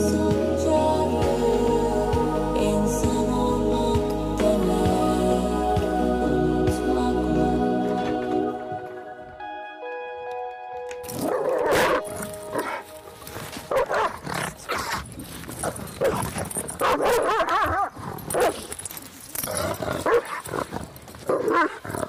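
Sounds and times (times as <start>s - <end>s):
dog barking and whining: 11.2s - 12.8s, 13.7s - 14.9s, 16.0s - 18.6s, 20.0s - 20.4s.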